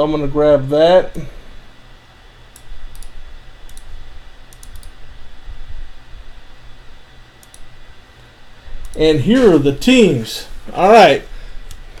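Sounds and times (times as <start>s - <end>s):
low steady hum: 0.0s - 12.0s
computer mouse clicks: 2.5s - 5.0s, 7.4s - 7.7s, 8.8s - 9.0s.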